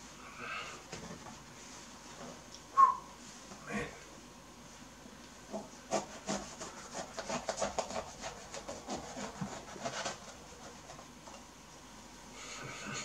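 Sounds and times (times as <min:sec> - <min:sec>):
fruit rind scraping by hand: 0:05.5 - 0:11.0.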